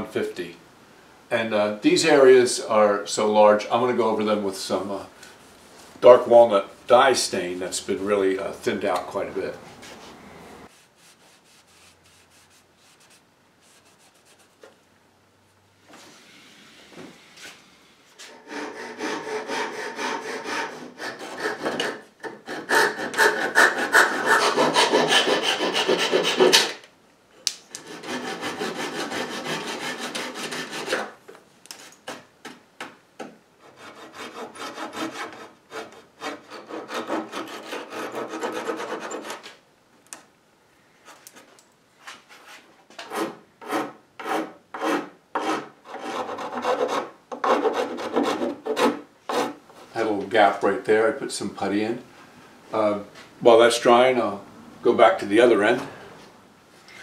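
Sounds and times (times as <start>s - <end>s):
hand file rasping on wood: 18.2s - 26.7s, 27.8s - 31.2s, 33.6s - 39.4s, 43.1s - 49.6s.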